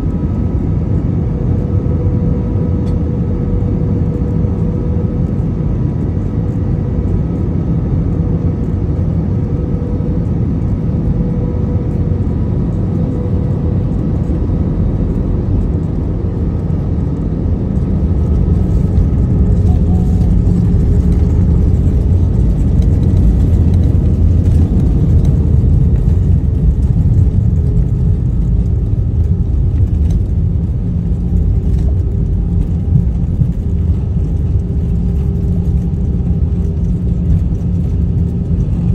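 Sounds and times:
airliner cabin engine rumble: 0.0s - 38.9s.

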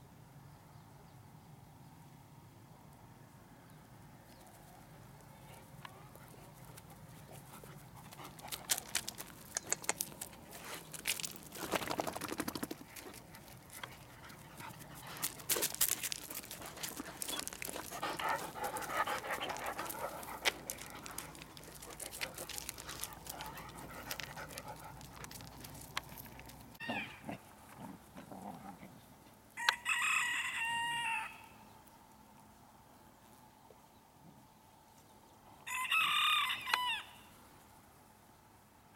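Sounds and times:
clicks and rustling: 8.4s - 14.1s, 15.2s - 26.8s
rooster crowing: 29.6s - 31.6s, 35.6s - 37.3s.

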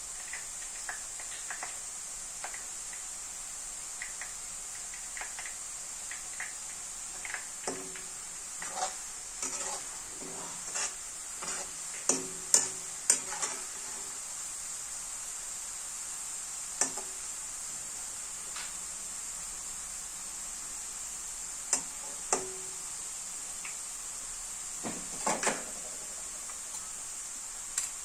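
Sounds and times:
potato sizzling in oil: 0.0s - 28.0s
metal ladle scraping a wok: 8.6s - 14.2s.

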